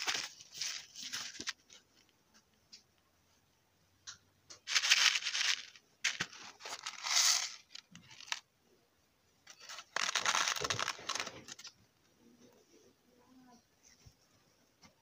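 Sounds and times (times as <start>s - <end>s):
paper packet crinkling: 0.0s - 1.8s, 4.6s - 8.4s, 9.5s - 11.8s.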